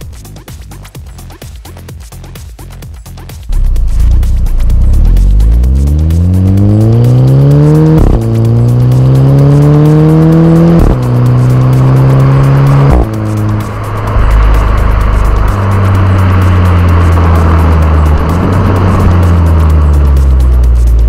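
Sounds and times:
car exhaust under acceleration: 3.5s - 21.0s
wind rush: 10.9s - 20.8s.

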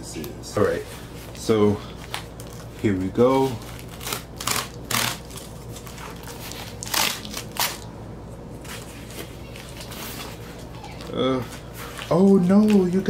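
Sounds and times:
cardboard tearing: 3.4s - 7.9s
cardboard crackling: 8.6s - 13.0s.

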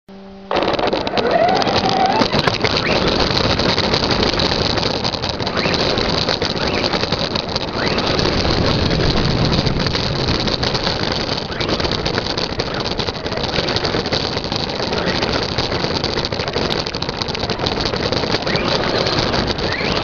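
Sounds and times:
electric motor whine: 0.1s - 4.5s, 5.2s - 15.6s
tyre and wind noise rushing: 0.5s - 20.0s.

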